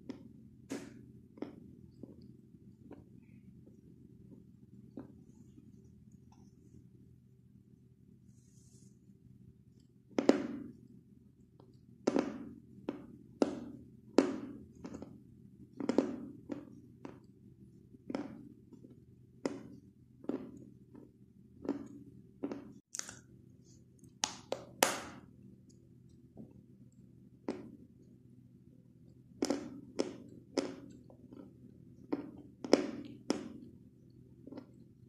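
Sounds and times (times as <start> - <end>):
chalk crunching as chewed: 22.4 - 23.2.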